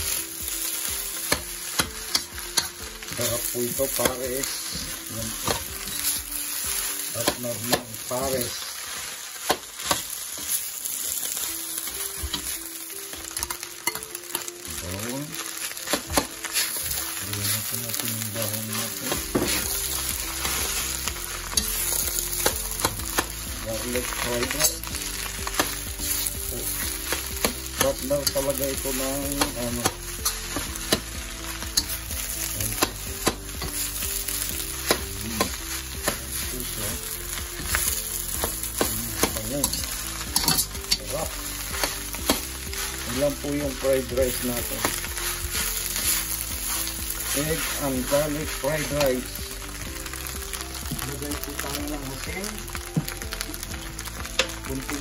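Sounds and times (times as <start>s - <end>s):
rice sizzling in a hot pan: 0.0s - 55.0s
metal spoon scraping a pan: 18.6s - 20.9s, 37.6s - 41.1s.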